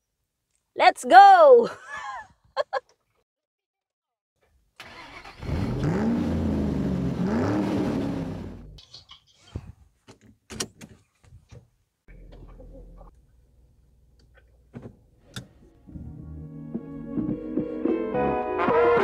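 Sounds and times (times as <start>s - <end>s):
car engine starting and revving: 4.8s - 8.8s.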